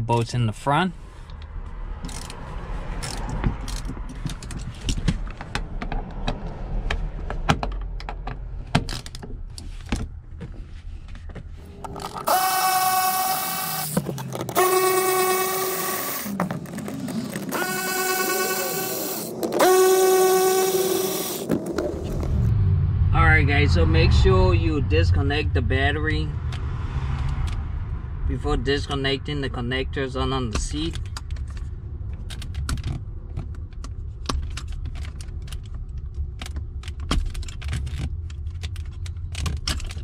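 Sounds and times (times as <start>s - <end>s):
hand ratchet clicking and scraping: 2.0s - 2.4s, 3.0s - 5.6s, 11.8s - 21.5s
cordless electric ratchet whining: 11.8s - 16.4s, 17.3s - 22.0s.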